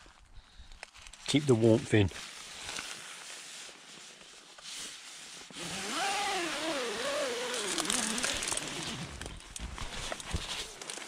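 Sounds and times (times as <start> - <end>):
tent zip being pulled: 2.2 - 11.0.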